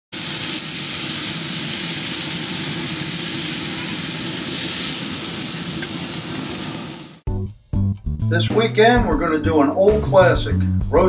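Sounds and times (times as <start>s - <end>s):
meat sizzling on grill: 0.1s - 7.3s.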